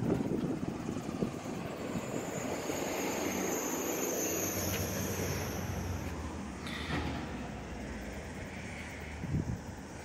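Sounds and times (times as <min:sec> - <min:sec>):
distant vehicle rumble: 0:00.0 - 0:10.0
thin high whine: 0:01.9 - 0:07.0.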